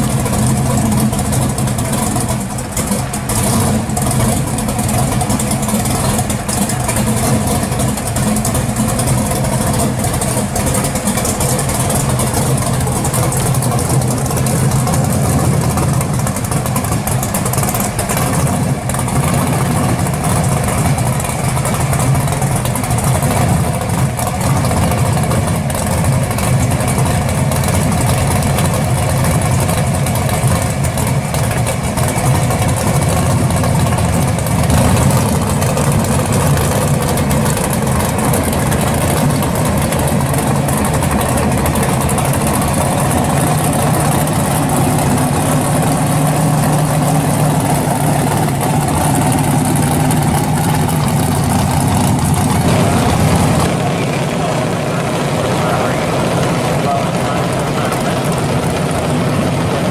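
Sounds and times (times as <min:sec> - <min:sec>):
car engine idling: 0:00.0 - 0:59.9.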